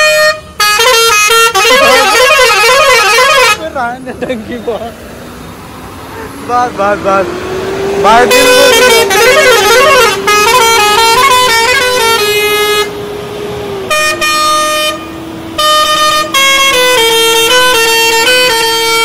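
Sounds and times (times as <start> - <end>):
musical air horn playing tune: 0.0 - 3.8, 8.1 - 13.0, 13.8 - 19.0.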